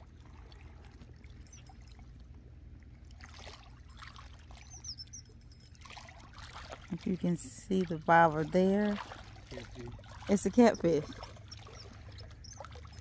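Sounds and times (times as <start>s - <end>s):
faint high squeaks: 4.6s - 5.7s, 11.0s - 13.0s
small waves lapping on rocks: 5.8s - 13.0s.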